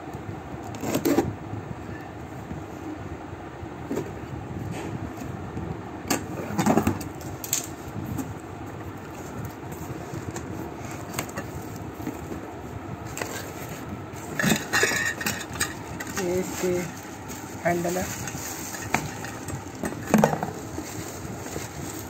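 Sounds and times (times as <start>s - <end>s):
steady background noise: 0.0s - 22.0s
cardboard and plastic rustling: 6.2s - 22.0s.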